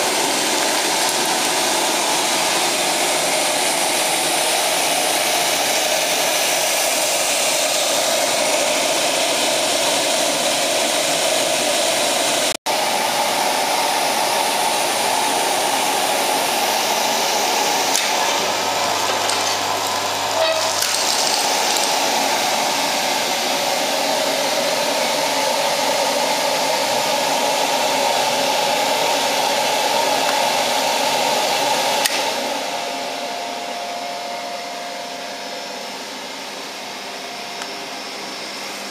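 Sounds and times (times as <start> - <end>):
burner fan rushing: 0.0 - 32.8.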